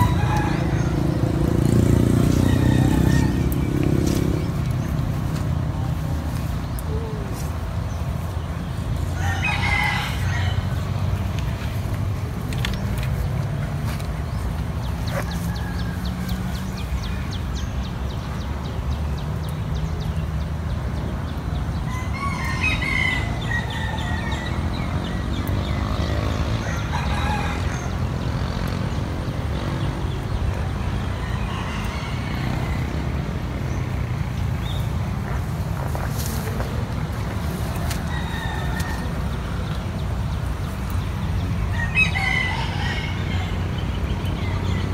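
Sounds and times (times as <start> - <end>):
rooster crowing: 0.0 - 1.2, 2.3 - 3.6, 9.2 - 10.8, 41.7 - 43.7.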